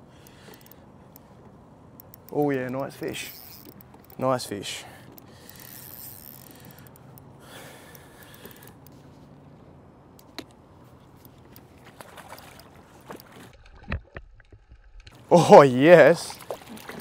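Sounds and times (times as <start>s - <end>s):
light clicks: 0.2s - 9.1s.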